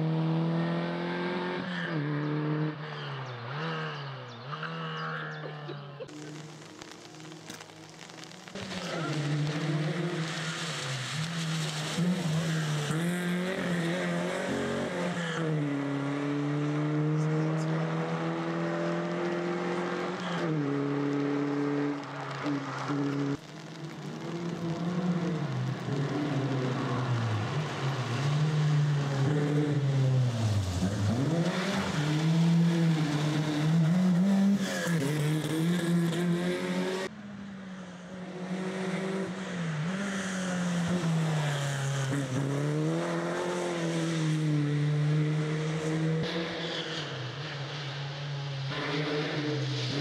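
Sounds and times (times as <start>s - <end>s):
rally car engine revving: 0.0s - 37.1s, 38.0s - 50.0s.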